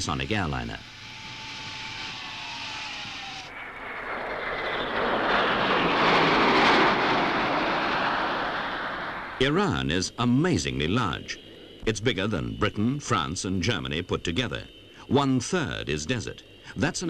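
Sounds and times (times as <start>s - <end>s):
jet airliner flying overhead: 0.0s - 17.0s
soft rush with falling whistle: 0.9s - 9.4s.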